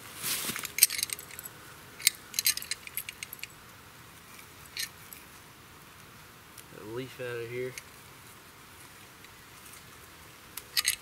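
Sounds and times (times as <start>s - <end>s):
metal chain clinking: 0.6s - 3.6s, 10.7s - 11.0s.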